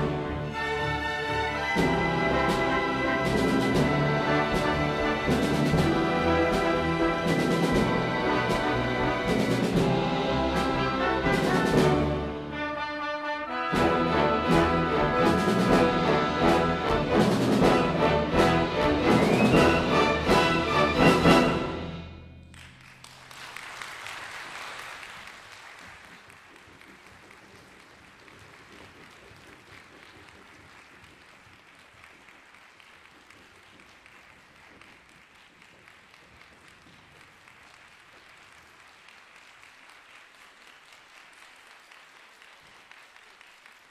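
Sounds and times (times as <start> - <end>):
audience applause: 22.5 - 43.9.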